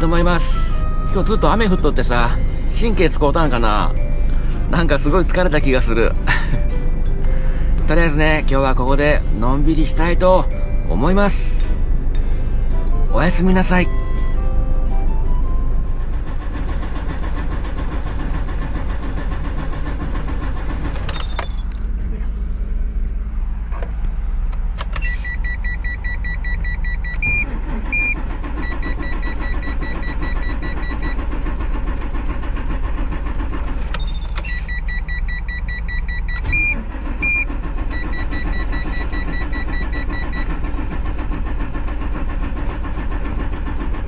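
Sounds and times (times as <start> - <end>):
low hum: 0.0 - 44.0
dashboard warning buzzer beeping: 25.0 - 31.2, 34.0 - 40.5.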